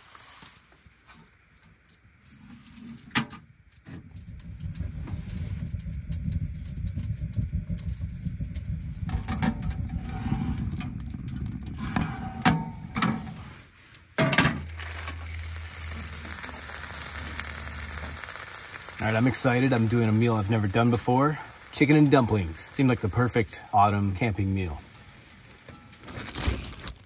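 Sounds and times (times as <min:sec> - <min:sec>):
wood fire crackling: 0:00.0 - 0:27.0
metal clanks: 0:11.9 - 0:13.4
chicken sizzling in skillet: 0:14.7 - 0:26.2.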